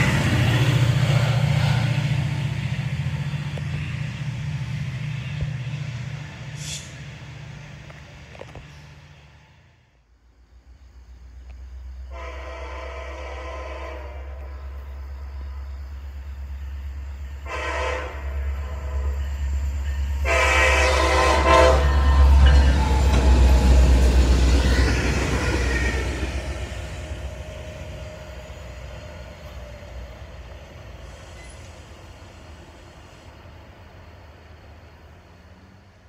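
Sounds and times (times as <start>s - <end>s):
diesel locomotive engine rumble: 0.0s - 36.0s
locomotive air horn blasts: 12.1s - 14.6s, 17.4s - 19.2s, 20.2s - 22.6s.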